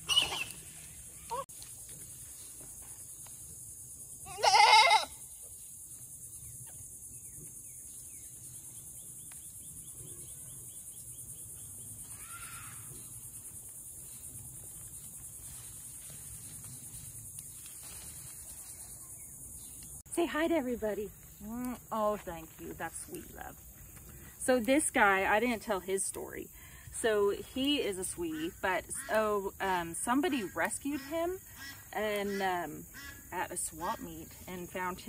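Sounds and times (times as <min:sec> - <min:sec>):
goat bleating: 0:04.3 - 0:05.2.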